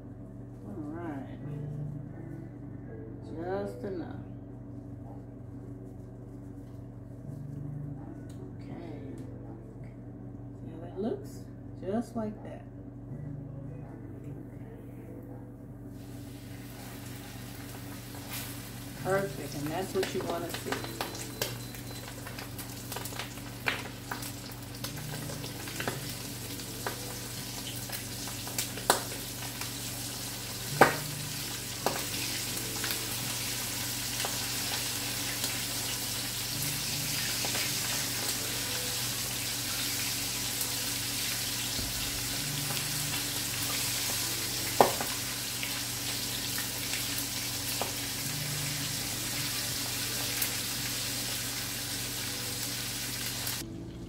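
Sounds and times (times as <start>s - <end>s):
meat frying in hot oil: 16.0s - 53.6s.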